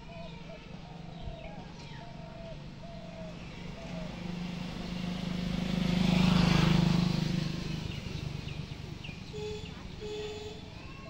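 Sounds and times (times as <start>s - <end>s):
vehicle engine passing by: 2.2s - 11.0s.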